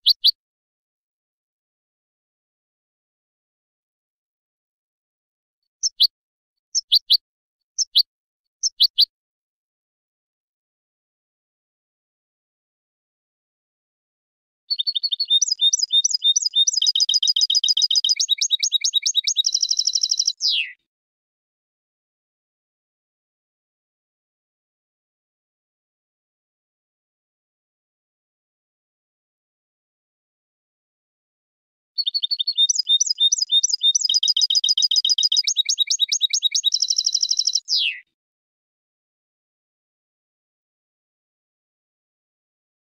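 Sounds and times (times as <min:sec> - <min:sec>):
goldfinch singing: 0:00.0 - 0:00.3, 0:05.8 - 0:06.1, 0:06.8 - 0:07.2, 0:08.6 - 0:09.1, 0:14.7 - 0:20.8, 0:32.0 - 0:38.0.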